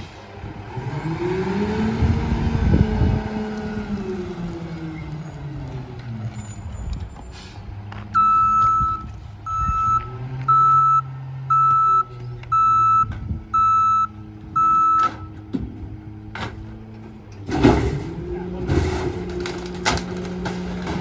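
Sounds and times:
truck back-up alarm beeping: 8.1 - 15.4.

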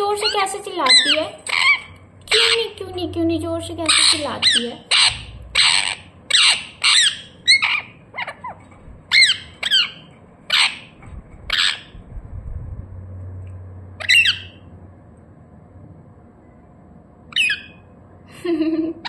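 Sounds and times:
parakeet squawking: 0.1 - 12.0, 14.0 - 14.7, 17.3 - 17.9.

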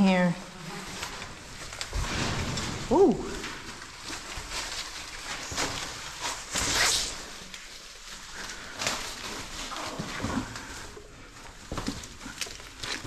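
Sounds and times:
rope and climbing gear scraping: 0.6 - 13.0
hissing rush of rope: 6.3 - 7.5.

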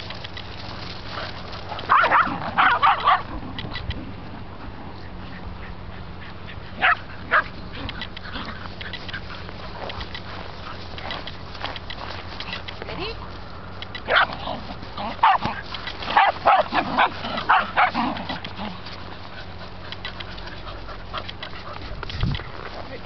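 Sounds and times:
dogs barking sharply: 1.8 - 3.4, 6.8 - 9.3, 14.0 - 18.8.

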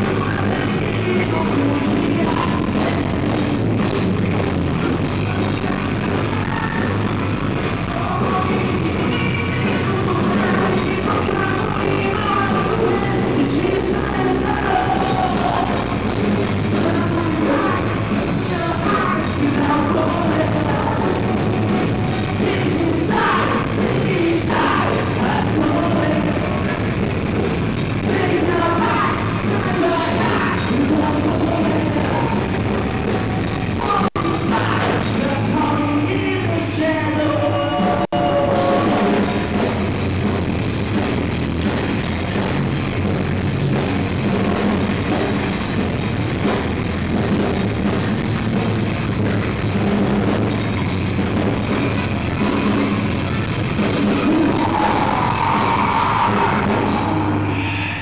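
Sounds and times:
person singing: 0.0 - 3.4, 5.2 - 26.9, 28.0 - 39.6, 53.8 - 58.0
live rock band playing: 0.0 - 58.0.

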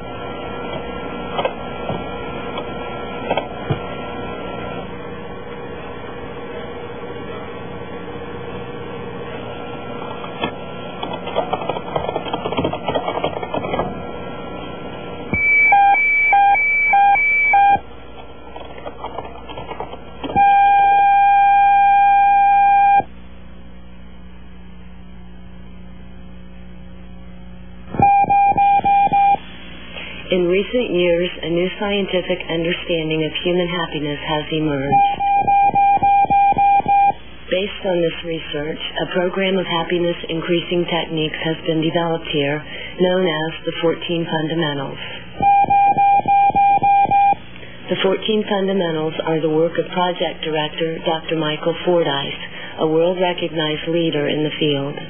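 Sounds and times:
low electrical hum with crackle: 0.0 - 55.0
long steady beep: 15.4 - 17.9, 20.4 - 23.1, 28.0 - 29.4, 34.9 - 37.2, 45.4 - 47.4
short electronic beeps: 28.0 - 29.4, 34.9 - 37.2, 45.4 - 47.4.

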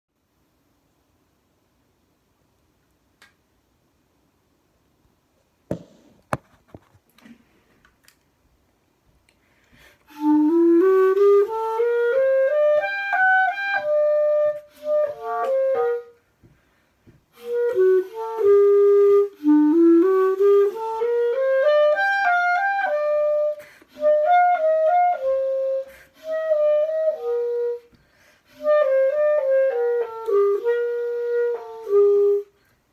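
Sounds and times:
clarinet playing melody: 10.1 - 16.2, 17.3 - 32.6.

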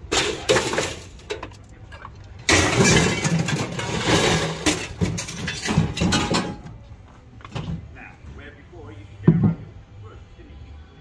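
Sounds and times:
scrap metal knocks and clanks: 0.0 - 6.8.

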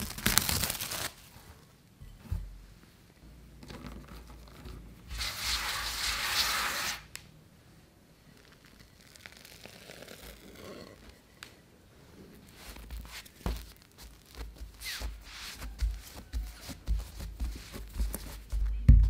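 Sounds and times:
handling of dough: 8.2 - 19.0
hand brushing flour on mat: 12.3 - 18.6.

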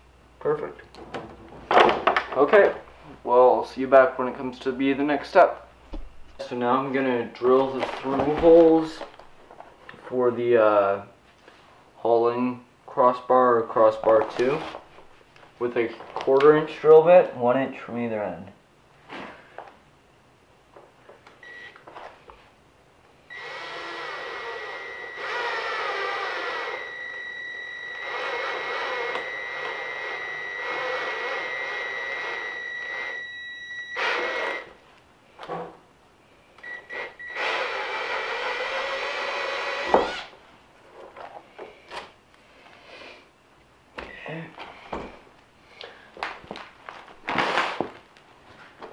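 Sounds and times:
cordless drill whining: 23.3 - 34.8, 36.6 - 40.4.

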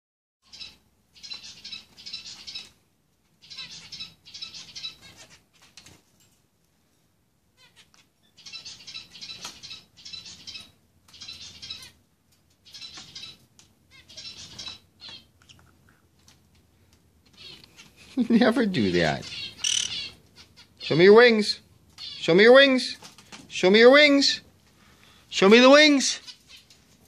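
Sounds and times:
parrots harsh chattering: 3.4 - 5.5, 18.8 - 21.1.

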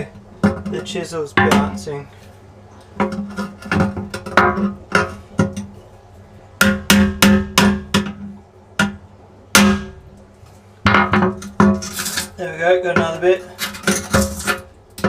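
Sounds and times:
glass tank ringing: 0.0 - 2.0, 9.6 - 10.1.

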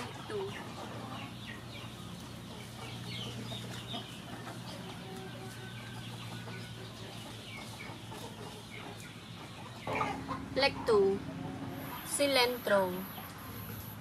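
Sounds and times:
chickens clucking: 0.0 - 14.0
steady low hum: 8.5 - 14.0.

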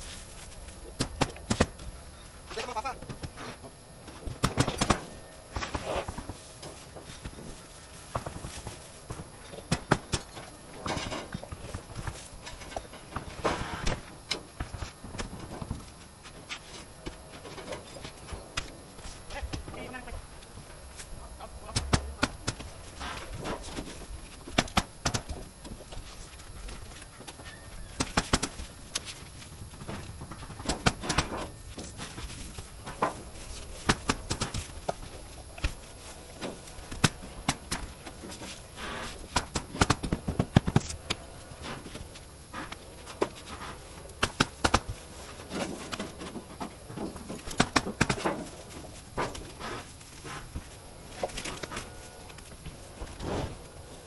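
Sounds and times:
outdoor background noise: 0.0 - 54.0.

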